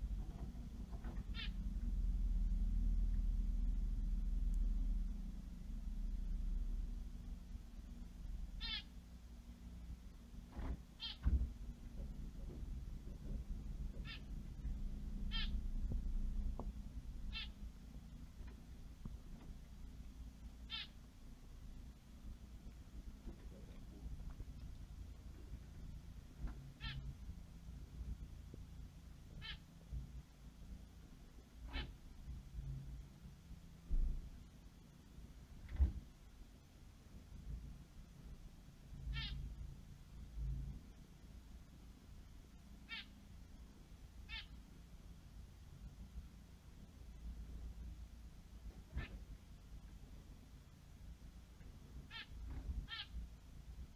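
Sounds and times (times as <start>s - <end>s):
low steady hum: 0.0s - 53.9s
high animal calls: 1.3s - 1.6s, 8.6s - 8.9s, 13.9s - 14.3s, 15.3s - 15.6s, 17.3s - 17.6s, 20.6s - 21.0s, 26.8s - 27.1s, 29.4s - 29.7s, 39.1s - 39.4s, 42.9s - 43.1s, 44.3s - 44.6s, 52.1s - 53.2s.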